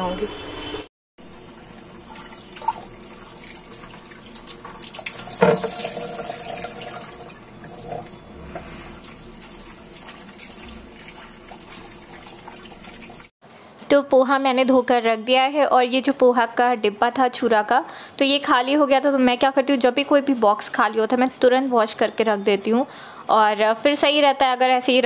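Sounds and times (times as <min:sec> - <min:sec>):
water splashing through colander: 0:01.4 - 0:13.3
tap running into steel sink: 0:05.3 - 0:06.7.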